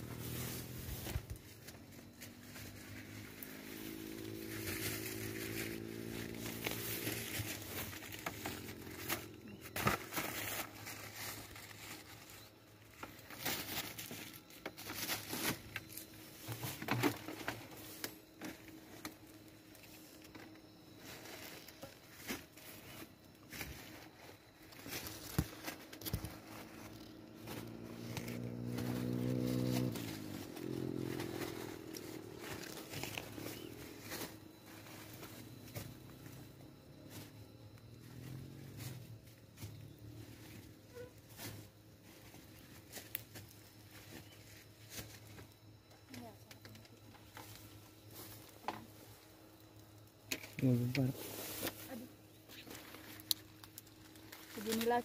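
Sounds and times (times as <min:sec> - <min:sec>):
leaves and twigs rustling: 0:00.0 - 0:55.0.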